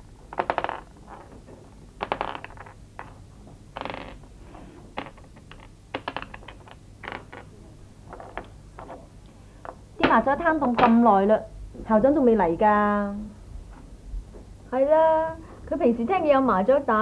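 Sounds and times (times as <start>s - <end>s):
tiles clacking on wooden table: 0.3s - 1.4s, 2.0s - 3.2s, 3.8s - 4.2s, 4.9s - 9.0s.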